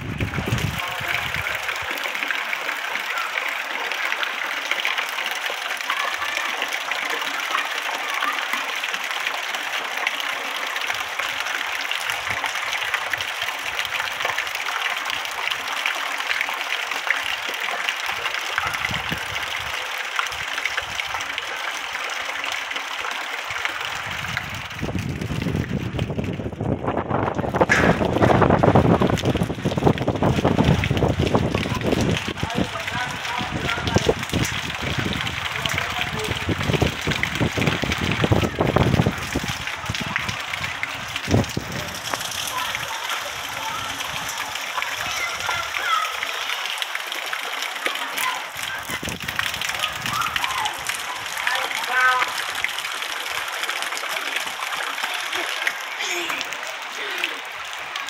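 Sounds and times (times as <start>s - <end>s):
wind buffeting microphone: 0.0s - 1.7s, 18.7s - 19.7s, 23.9s - 45.7s, 48.7s - 51.2s
steady rain falling: 0.0s - 58.0s
water running: 0.0s - 58.0s.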